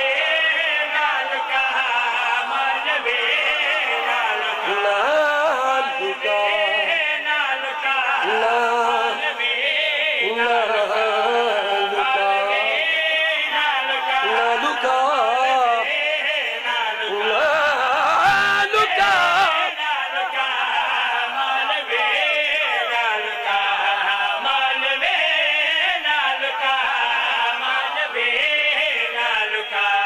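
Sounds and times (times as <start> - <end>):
man chanting devotional poem: 0.0 - 30.0.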